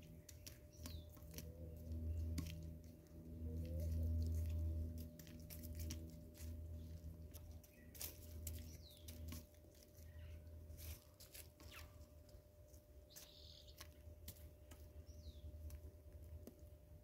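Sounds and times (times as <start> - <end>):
low steady hum: 0.0 - 17.0
high bird chirps: 13.1 - 13.8.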